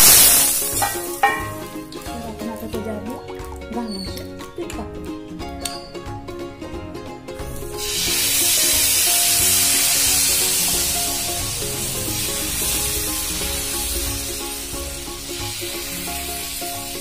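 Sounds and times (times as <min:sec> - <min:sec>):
batter sizzling on hot pan: 0:00.0 - 0:02.0, 0:07.4 - 0:17.0
background music: 0:00.0 - 0:17.0.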